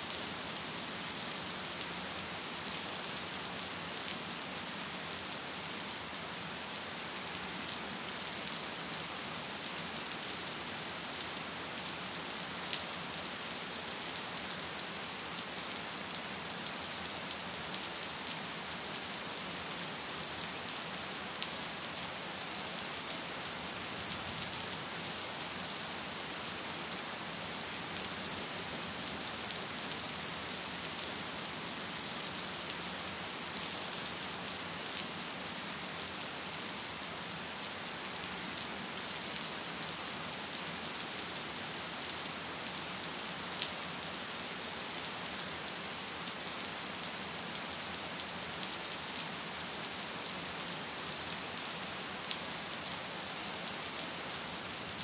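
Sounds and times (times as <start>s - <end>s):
gentle rain falling: 0.0s - 55.0s.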